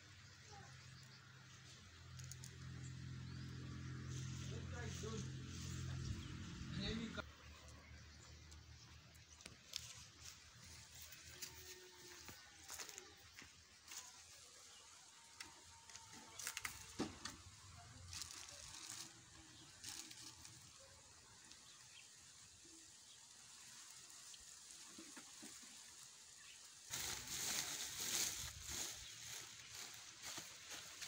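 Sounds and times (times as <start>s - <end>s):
hand rustling in plastic sack: 18.0s - 20.8s, 26.9s - 31.0s.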